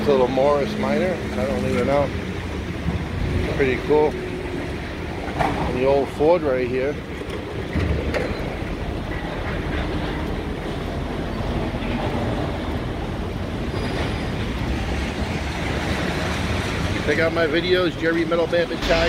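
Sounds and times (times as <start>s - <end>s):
heavy machinery rumble and clatter: 0.0s - 19.0s.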